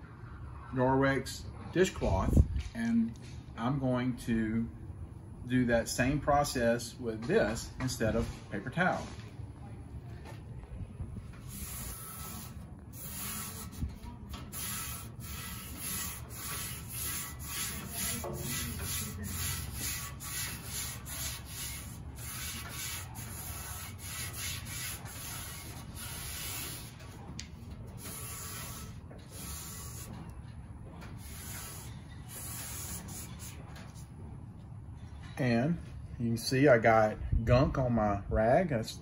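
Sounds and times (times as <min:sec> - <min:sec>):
cloth scrubbing steel griddle: 0:11.4 - 0:30.3, 0:31.2 - 0:33.6.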